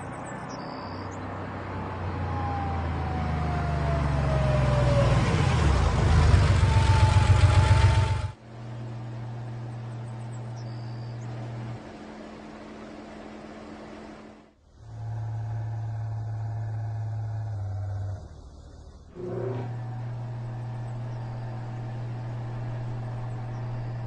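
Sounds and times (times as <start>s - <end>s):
vehicle engine running: 3.0s - 24.0s
steady low hum: 7.4s - 24.0s.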